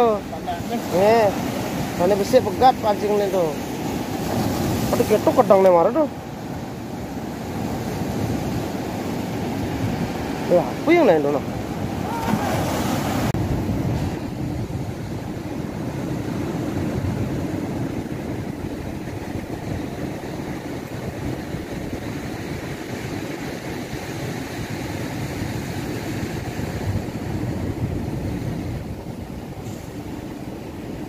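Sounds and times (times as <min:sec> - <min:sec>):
surf breaking over rocks: 0:00.0 - 0:23.8
wind on microphone: 0:00.0 - 0:31.0.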